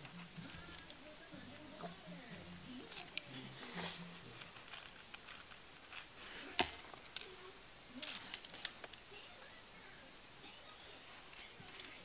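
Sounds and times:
plastic clicks and rattles: 0:00.4 - 0:01.1, 0:04.4 - 0:07.4, 0:08.0 - 0:09.0, 0:11.6 - 0:12.0.

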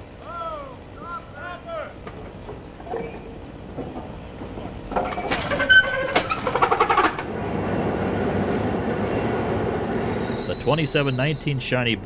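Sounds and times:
steady rumble: 0:00.0 - 0:12.0
metal clanks with squeals: 0:02.0 - 0:07.3, 0:09.1 - 0:11.6.

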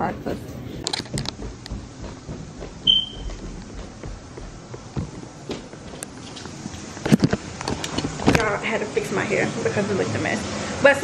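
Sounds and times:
footsteps on carpeted stairs: 0:00.8 - 0:08.6.

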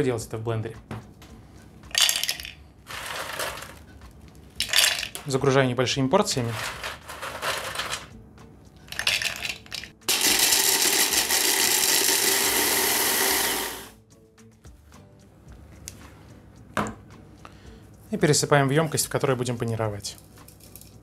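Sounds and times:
blender motor grinding: 0:10.1 - 0:14.0.

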